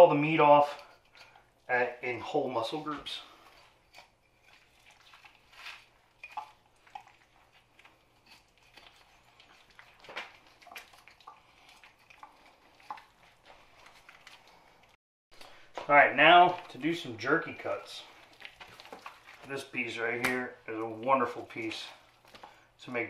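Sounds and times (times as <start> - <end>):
knife slicing wet meat: 3.5 - 14.4.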